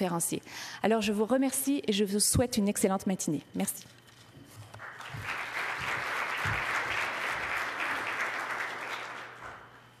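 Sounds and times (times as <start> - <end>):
audience applauding: 4.8 - 9.8.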